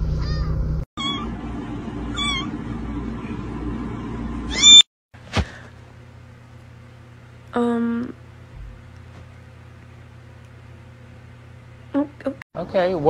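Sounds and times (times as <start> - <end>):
kittens meowing: 0.2 - 1.3, 2.1 - 2.5, 4.5 - 4.8.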